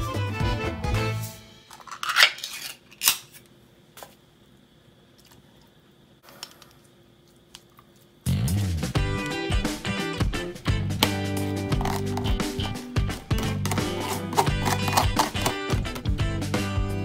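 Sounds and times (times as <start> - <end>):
background music: 0.0 - 1.7, 8.3 - 17.0
salt shaker shaking: 11.7 - 15.6.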